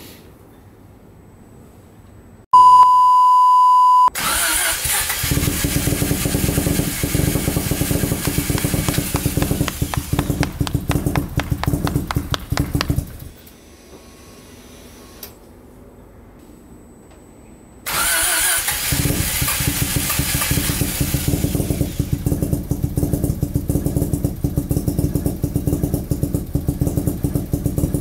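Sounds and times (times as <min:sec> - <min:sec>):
loud electronic bleep: 0:02.6 - 0:04.2
sharp regular cracks: 0:04.2 - 0:13.4
rotary engine idling: 0:04.8 - 0:13.4, 0:17.9 - 0:28.0.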